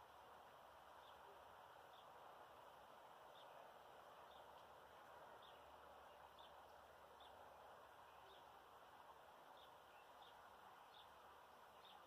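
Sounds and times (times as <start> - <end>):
faint hiss: 0.0 - 12.0
small bird chirping: 5.4 - 8.5, 9.5 - 12.0.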